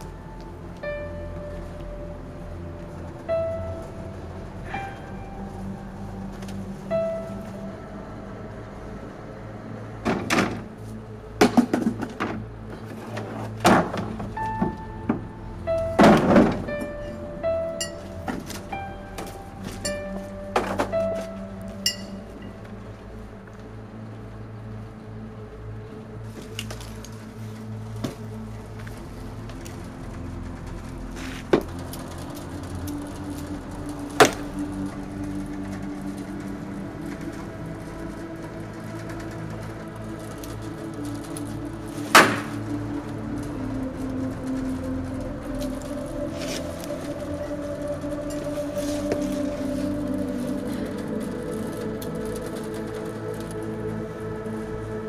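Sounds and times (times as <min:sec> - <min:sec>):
soft background music: 0:00.0 - 0:55.0
plastic bin thumping and clattering: 0:16.0 - 0:16.9.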